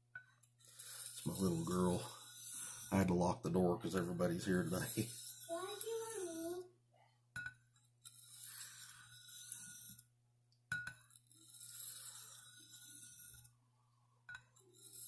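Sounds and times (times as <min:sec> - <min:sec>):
blade stroking sharpening stone: 0:00.6 - 0:03.2, 0:04.4 - 0:06.6, 0:08.0 - 0:10.1, 0:11.0 - 0:13.5, 0:14.6 - 0:15.0.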